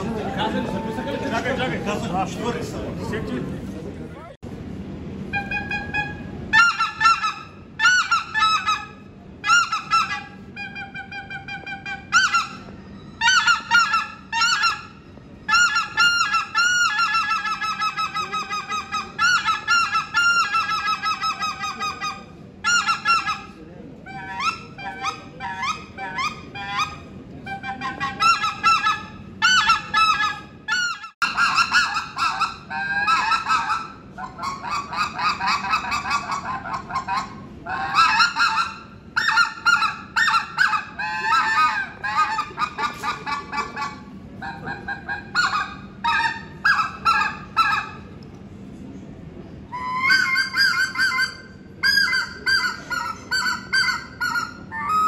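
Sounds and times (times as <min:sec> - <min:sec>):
goose call honks: 0:05.3 - 0:48.0.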